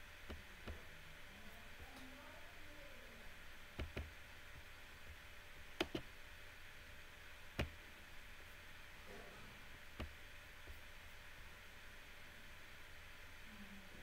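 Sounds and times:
faint room hiss: 0.0s - 14.0s
sharp clicks: 5.8s - 6.1s.

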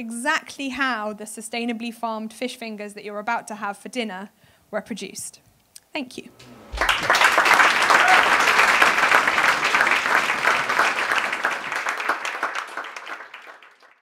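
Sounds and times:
audience applauding: 6.3s - 14.0s.

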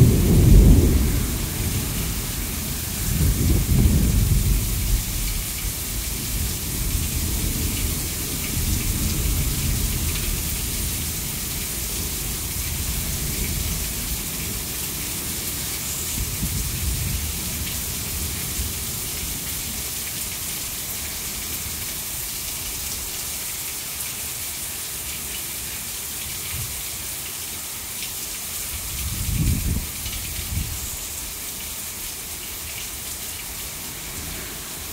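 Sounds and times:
rumbling thunder: 0.0s - 15.0s
heavy rain pouring: 0.0s - 34.9s
water running off roof: 0.0s - 34.9s.

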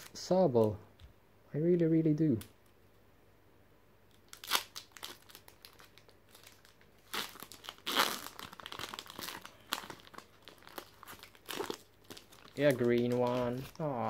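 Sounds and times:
foil wrapper tearing and crinkling: 4.2s - 13.8s.

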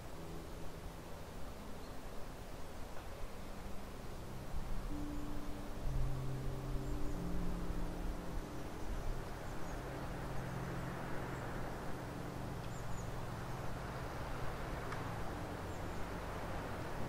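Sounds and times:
low hum: 3.1s - 17.0s
small birds chirping: 3.8s - 16.9s.

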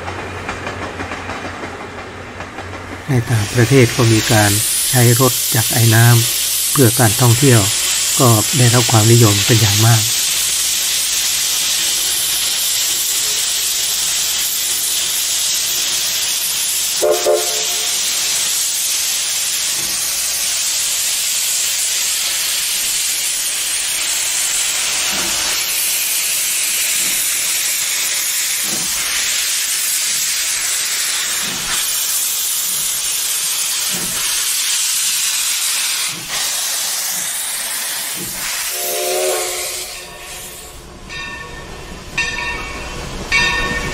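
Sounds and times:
steam locomotive hissing: 0.0s - 43.9s
steam whistle blast: 16.9s - 18.2s, 38.4s - 40.8s.

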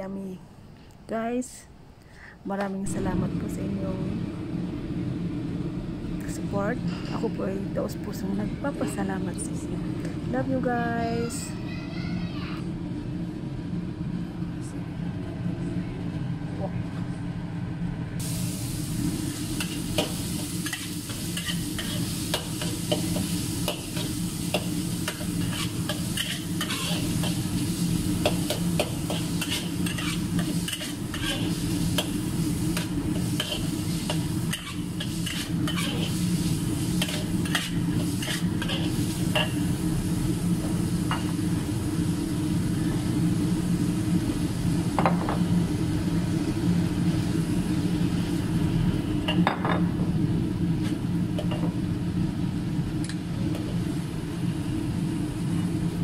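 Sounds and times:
steady low hum: 0.0s - 11.6s, 12.6s - 56.0s
meat sizzling in a wok: 18.2s - 56.0s
metal spatula scraping a wok: 19.6s - 23.2s, 23.8s - 27.5s, 28.4s - 39.6s.

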